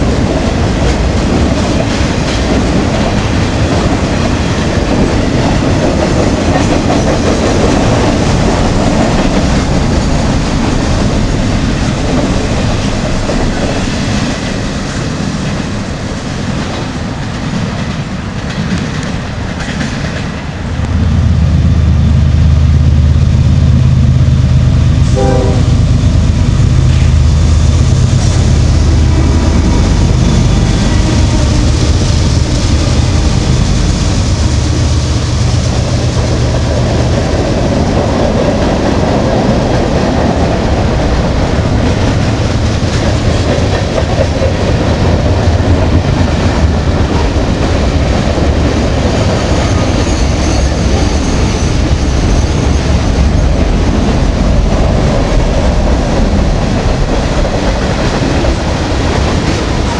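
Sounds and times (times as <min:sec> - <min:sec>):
diesel locomotives running: 0:00.0 - 0:59.9
train horn: 0:25.0 - 0:26.0.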